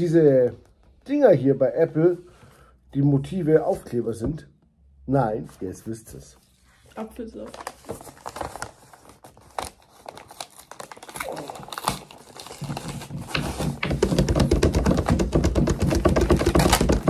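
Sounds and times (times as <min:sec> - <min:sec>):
hands drumming on a tabletop: 0:13.2 - 0:17.0.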